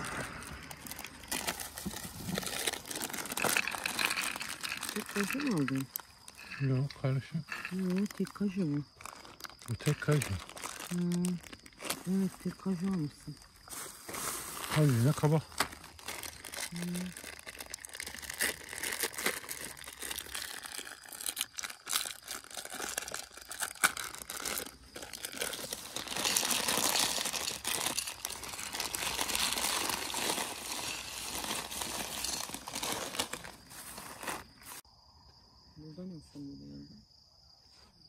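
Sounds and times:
plastic snack packet crinkling: 0:00.0 - 0:34.8.

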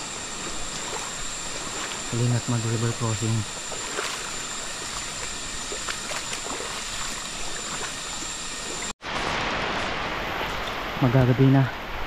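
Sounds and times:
faint splashes of wading: 0:00.4 - 0:11.0
steady hiss of rain: 0:09.0 - 0:12.0.

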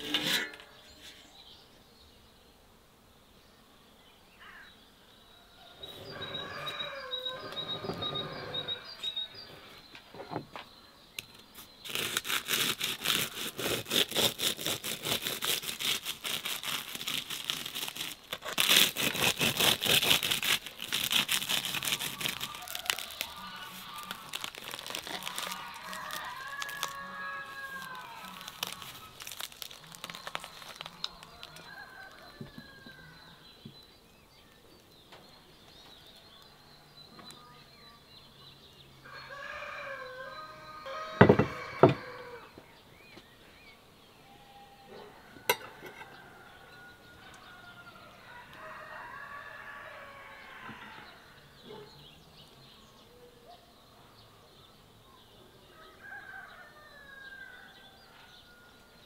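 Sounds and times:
birds calling: 0:04.4 - 0:12.6, 0:18.4 - 0:54.7
knife crunching through crisp crust: 0:11.6 - 0:32.2.

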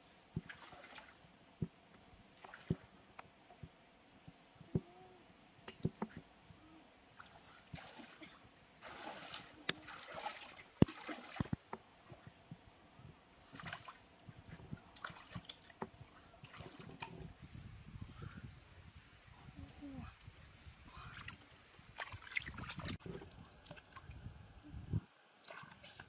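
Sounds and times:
stream water splashing: 0:07.2 - 0:12.2, 0:14.9 - 0:17.2, 0:21.2 - 0:24.0.

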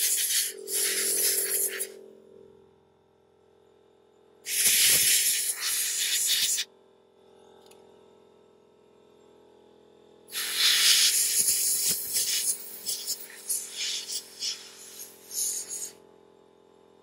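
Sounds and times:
compressed air hissing: 0:00.0 - 0:01.9, 0:04.5 - 0:06.6, 0:10.3 - 0:15.9.

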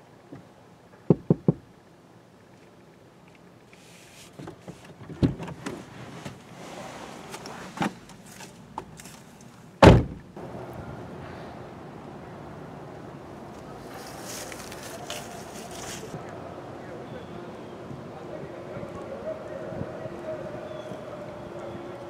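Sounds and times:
steady background hiss: 0:00.0 - 0:22.0
car door clicks and rustling: 0:04.3 - 0:06.4, 0:09.8 - 0:10.3
car door slamming: 0:09.8 - 0:10.3.

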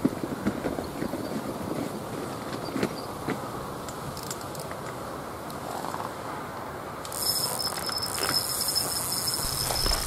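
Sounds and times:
fishing reel spool buzzing: 0:07.1 - 0:10.0.

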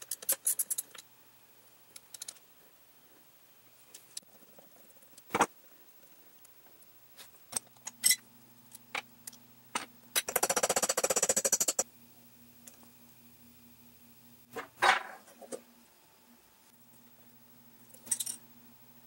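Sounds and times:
metal parts clicking and clinking: 0:00.0 - 0:01.0, 0:02.0 - 0:02.4, 0:07.5 - 0:08.2, 0:17.9 - 0:18.4.

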